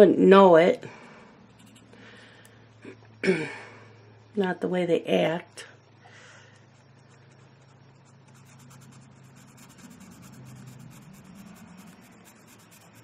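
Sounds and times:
steady low hum: 0.0s - 13.0s
marker scratching on paper: 7.1s - 13.0s.

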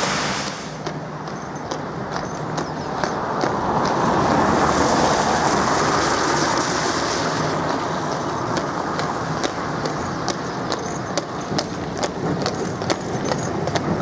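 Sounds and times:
van tyres hissing on wet road: 0.0s - 0.8s, 4.2s - 8.1s
horse hooves clip-clopping: 0.4s - 14.0s.

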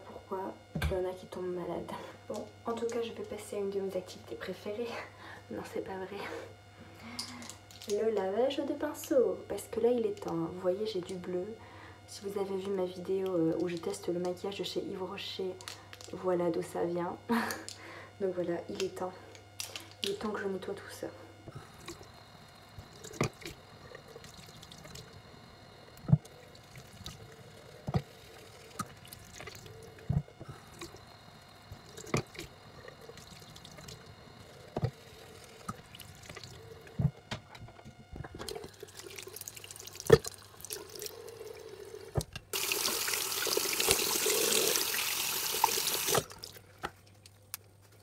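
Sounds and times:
tap water running: 21.6s - 31.1s, 31.7s - 37.1s, 38.2s - 46.6s.

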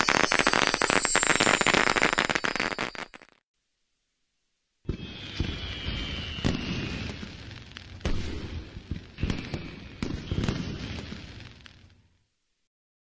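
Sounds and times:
fireworks bangs: 0.0s - 3.3s, 4.8s - 12.1s
fireworks crackling: 0.0s - 3.4s, 4.8s - 12.1s
high whistling tone: 4.9s - 7.6s.

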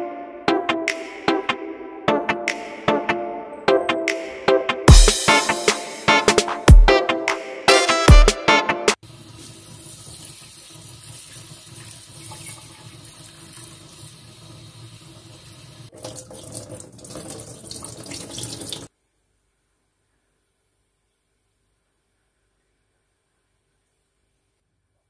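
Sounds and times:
tap water splashing into sink: 9.2s - 18.9s.

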